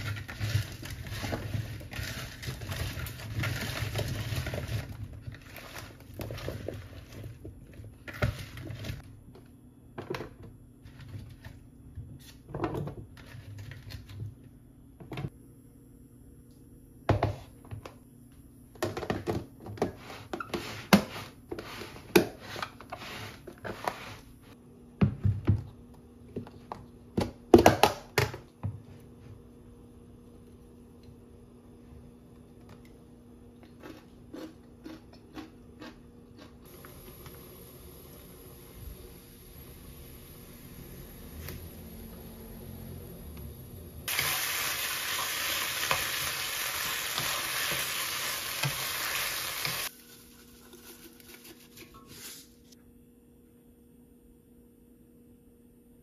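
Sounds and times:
hands mixing food in bowl: 0.0s - 9.1s, 49.6s - 52.5s.

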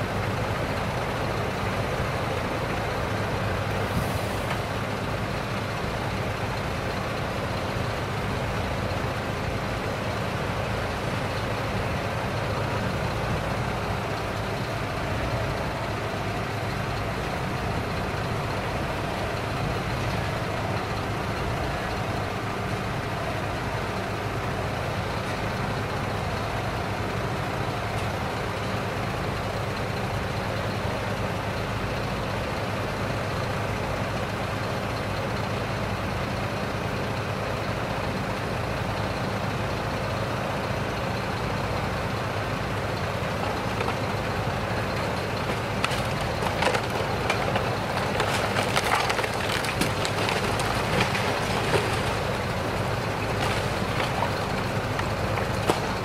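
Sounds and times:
truck engine running: 0.0s - 56.0s
wood cracking and splintering: 43.1s - 56.0s.

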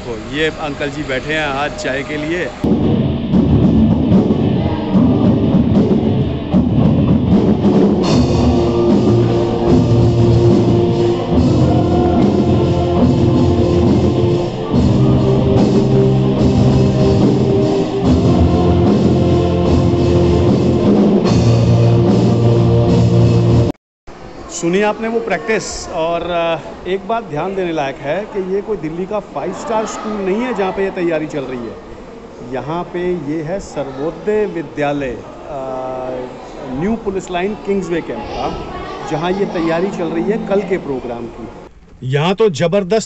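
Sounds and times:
rock band playing: 2.7s - 23.7s.

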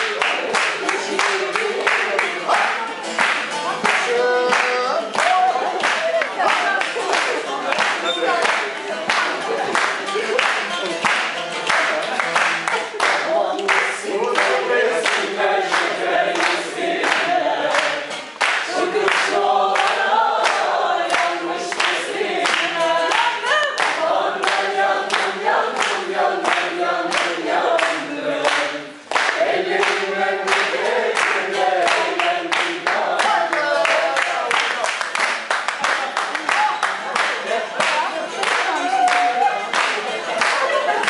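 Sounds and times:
plucked lute: 0.0s - 29.2s
group singing folk tune: 0.0s - 41.0s
hand claps: 0.0s - 41.0s.

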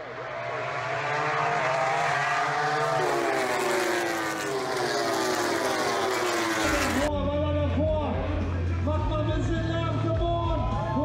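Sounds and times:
racing motorcycles passing by: 0.0s - 7.1s.

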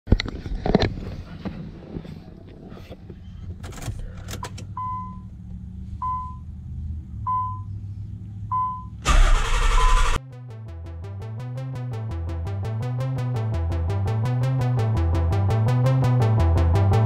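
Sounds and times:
loud burst of noise: 9.1s - 10.2s.

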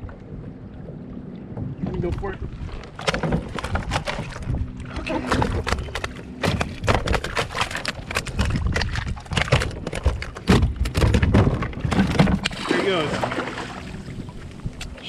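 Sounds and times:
fish thrashing and splashing: 2.8s - 14.1s
knocks against kayak hull: 5.3s - 12.6s.

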